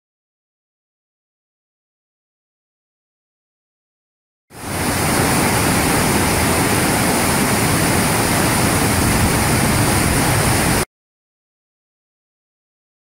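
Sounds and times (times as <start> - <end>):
waterfall roaring: 4.6 - 10.9.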